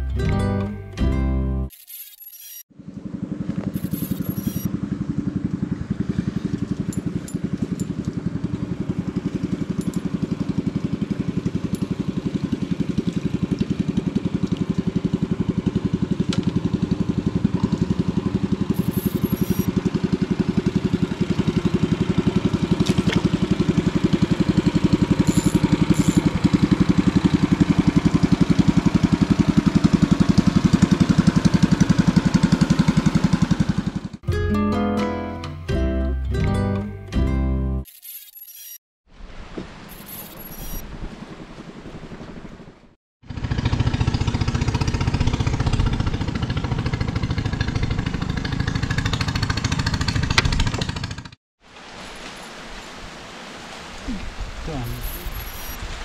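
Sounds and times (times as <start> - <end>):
small engine puttering: 1.7 - 34.2, 37.8 - 38.8, 39.9 - 40.8, 43.2 - 51.4, 54.8 - 55.8.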